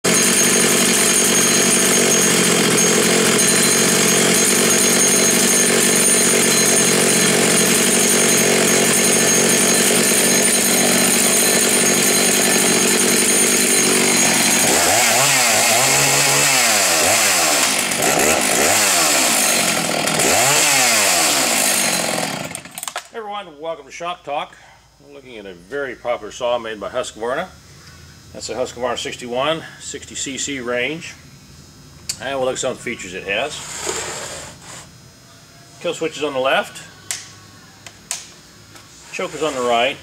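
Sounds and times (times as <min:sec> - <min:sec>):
chainsaw engine revving: 0:00.1 - 0:23.0.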